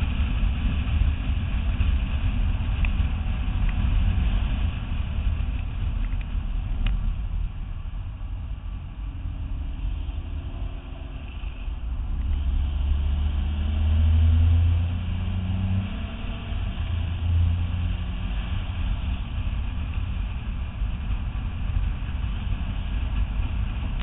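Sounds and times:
car engine accelerating: 0.0s - 24.0s
road and wind noise: 0.0s - 24.0s.

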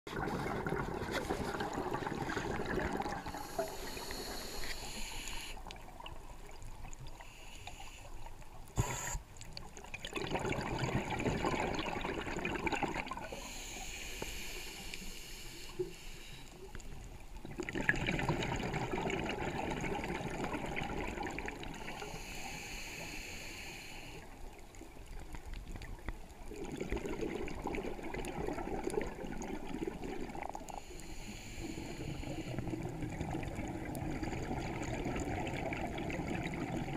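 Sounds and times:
exhaled bubbles rushing: 0.1s - 3.8s, 9.8s - 13.4s, 17.4s - 21.9s, 26.4s - 30.8s, 32.5s - 36.9s
regulator hissing inhale: 3.3s - 5.6s, 7.1s - 9.3s, 13.2s - 16.8s, 21.8s - 24.4s, 30.7s - 32.9s.

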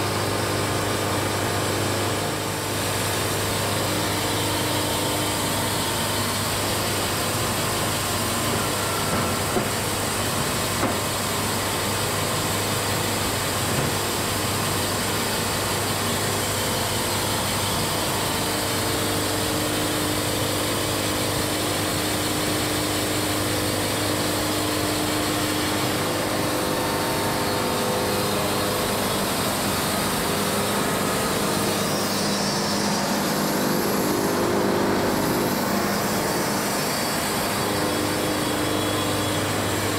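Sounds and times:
band sawmill cutting wood: 0.1s - 39.9s.

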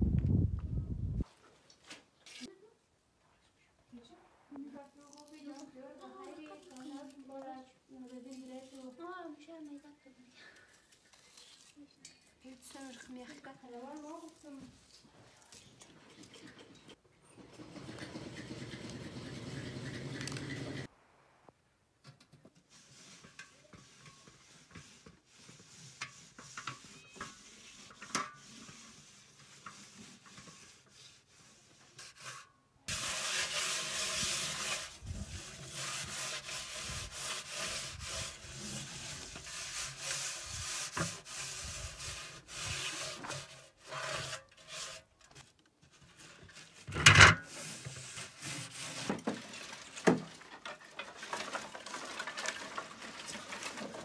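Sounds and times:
hands scouring metal pot: 22.6s - 45.1s, 46.0s - 54.0s.

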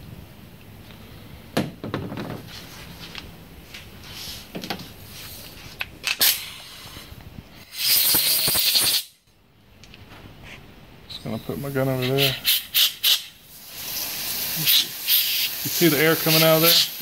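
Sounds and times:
compressed air blow gun hiss: 6.2s - 9.2s, 11.6s - 17.0s.

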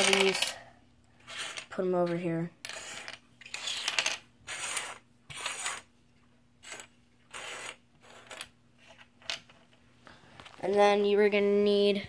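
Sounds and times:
plastic toy bricks clattering: 0.0s - 0.6s.

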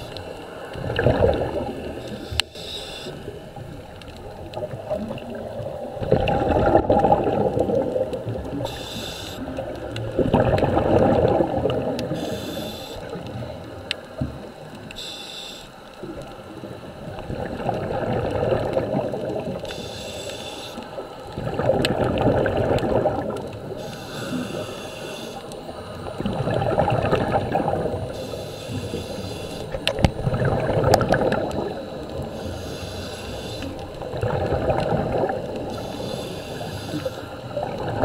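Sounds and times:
bubbling underwater exhalations: 0.8s - 2.0s, 4.5s - 8.7s, 9.4s - 12.2s, 17.0s - 19.6s, 21.3s - 23.8s, 25.9s - 28.2s, 29.7s - 32.4s, 33.8s - 35.8s, 37.4s - 38.0s
hissing regulator inhalations: 1.9s - 3.4s, 8.6s - 9.7s, 12.1s - 13.4s, 14.8s - 16.0s, 19.6s - 21.1s, 23.6s - 26.0s, 28.0s - 29.9s, 31.9s - 34.0s, 35.5s - 37.5s.

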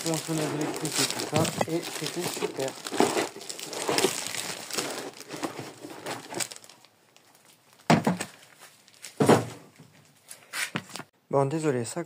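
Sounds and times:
plastic crinkling: 0.0s - 9.2s.

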